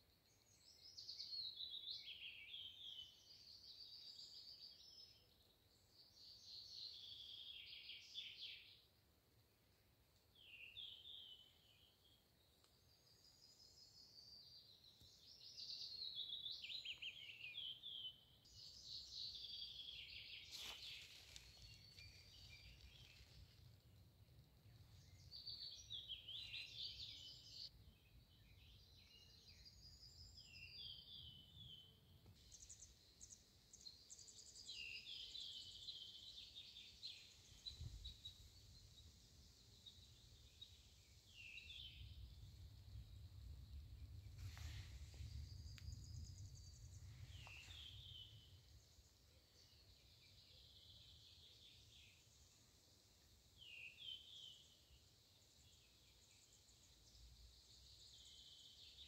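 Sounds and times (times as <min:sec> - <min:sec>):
low wind rumble: 0:37.4 - 0:49.9.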